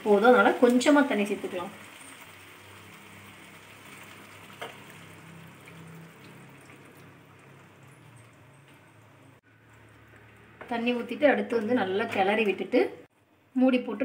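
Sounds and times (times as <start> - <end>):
curry crackling and bubbling: 0.2 - 10.6.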